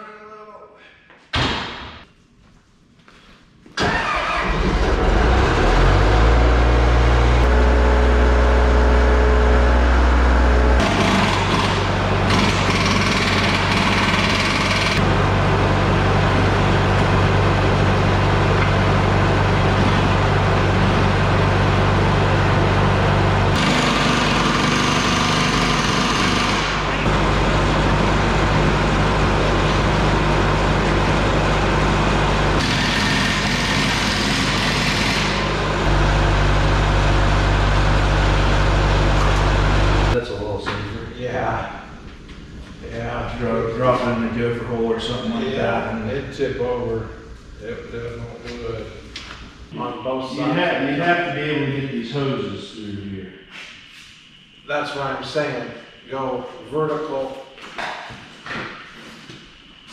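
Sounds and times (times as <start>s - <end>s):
machine motor running: 5.0s - 40.2s.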